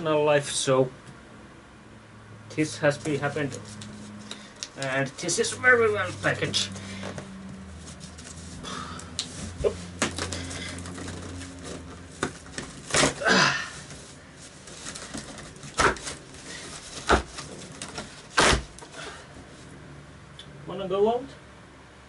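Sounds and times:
cardboard scraping and knocking: 9.3 - 13.2, 13.8 - 18.8
cardboard box tearing open: 9.6 - 14.0, 14.6 - 18.9.

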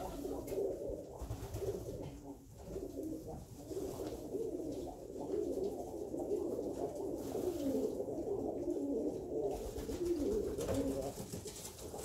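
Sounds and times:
pigeons cooing: 0.0 - 12.0.

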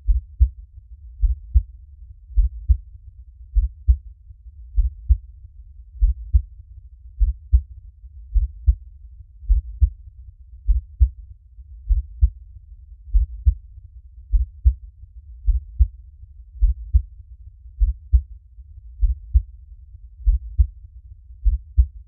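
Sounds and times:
human heartbeat: 0.0 - 0.6, 1.2 - 2.9, 3.5 - 4.1, 4.7 - 5.3, 5.9 - 6.5, 7.2 - 7.7, 8.3 - 10.0, 10.6 - 11.2, 11.8 - 12.4, 13.0 - 13.7, 14.3 - 14.8, 15.4 - 16.0, 16.6 - 17.2, 17.8 - 18.3, 19.0 - 19.6, 20.2 - 20.8, 21.4 - 22.0.

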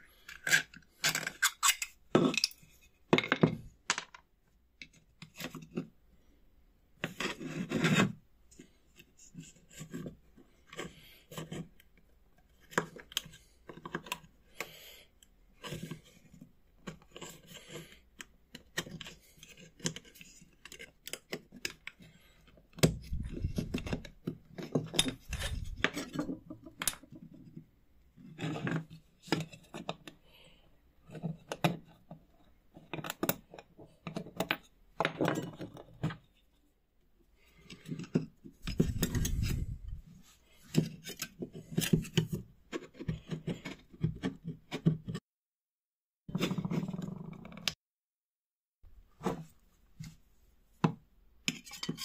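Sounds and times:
metal scraper scraping: 25.0 - 26.3.

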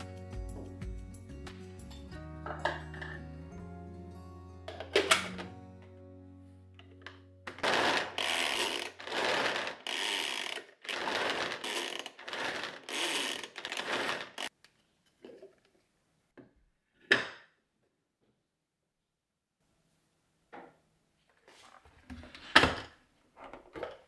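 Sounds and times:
hand mechanism whirring: 7.5 - 14.5.

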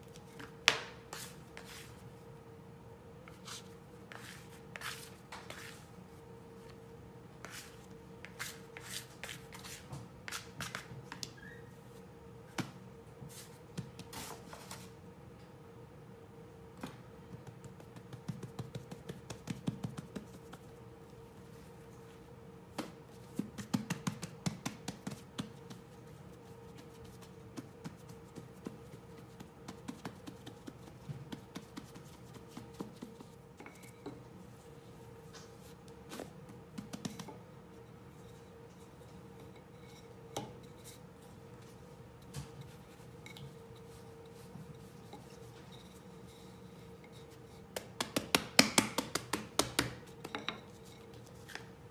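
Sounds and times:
faint steady hum: 0.0 - 51.9
hands patting dough: 16.8 - 21.2, 22.7 - 34.3, 35.2 - 37.5, 47.0 - 51.8.

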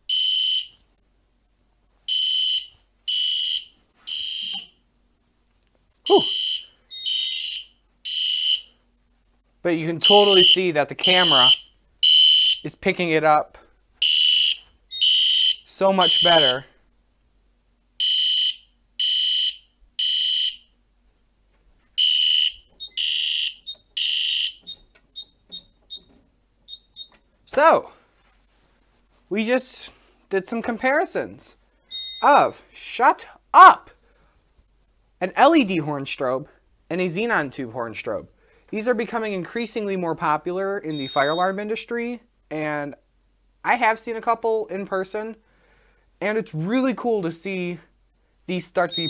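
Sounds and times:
fire alarm high beeps: 0.1 - 0.8, 2.1 - 4.8, 6.1 - 8.7, 10.0 - 12.7, 14.0 - 16.7, 18.0 - 20.8, 22.0 - 27.2, 31.8 - 32.4, 40.9 - 41.6, 48.8 - 49.0
alarm horn blasts: 10.0 - 12.6, 14.0 - 16.6.

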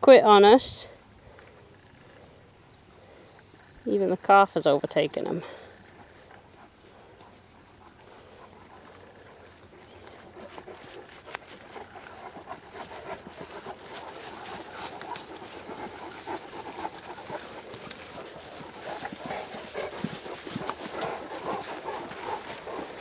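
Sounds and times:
dogs panting: 5.3 - 23.0
footsteps through grass: 7.9 - 23.0.

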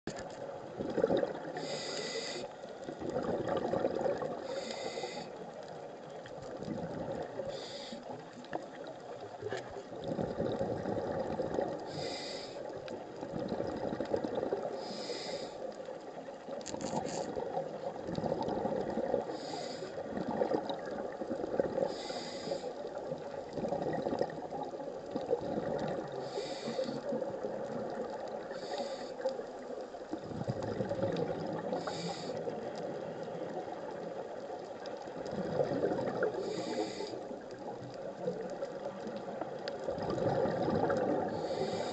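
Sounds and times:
bubbling exhalations: 0.8 - 1.7, 2.9 - 4.4, 10.0 - 11.9, 16.8 - 22.1, 23.5 - 24.6, 25.2 - 26.5, 30.2 - 32.0, 35.2 - 36.6, 39.9 - 41.9
regulator hissing inhale: 1.6 - 2.9, 4.4 - 5.4, 7.4 - 8.2, 11.9 - 12.8, 14.8 - 15.7, 19.3 - 20.1, 21.8 - 22.9, 26.2 - 27.1, 28.5 - 29.3, 31.7 - 32.6, 36.4 - 37.3, 41.3 - 41.9.

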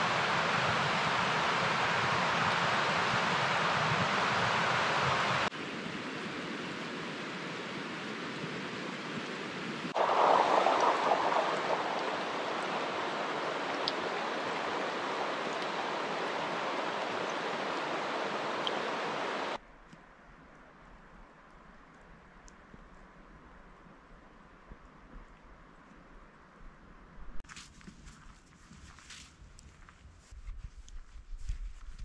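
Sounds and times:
river rushing: 9.9 - 19.6.

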